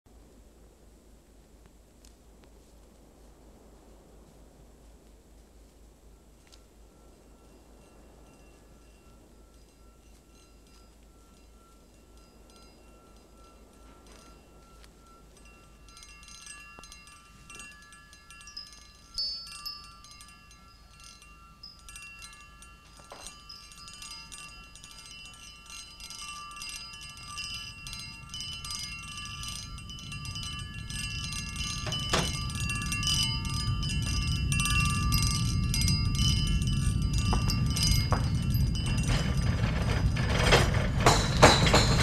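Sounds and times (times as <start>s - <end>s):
glassware ringing: 7.0s - 42.0s
glasses clinking: 7.6s - 42.0s
low-flying jet aircraft rumble: 30.7s - 42.0s.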